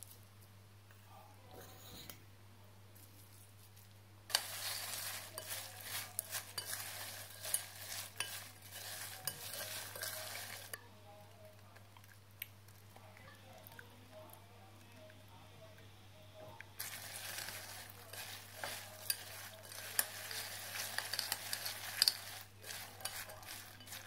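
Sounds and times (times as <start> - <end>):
spoon scraping glass bowl: 4.3 - 10.8, 16.8 - 24.0.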